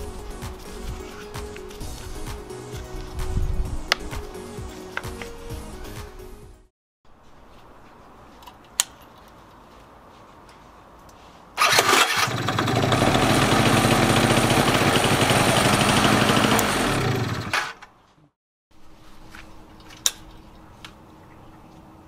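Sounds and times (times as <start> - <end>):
scooter engine starting and running: 11.6 - 17.9.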